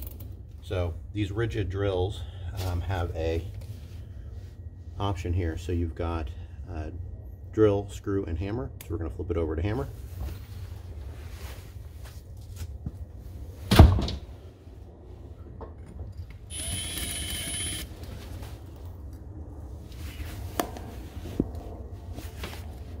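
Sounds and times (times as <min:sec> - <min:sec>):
low steady rumble: 0:00.0 - 0:23.0
hammer drill motor whine: 0:16.5 - 0:17.9.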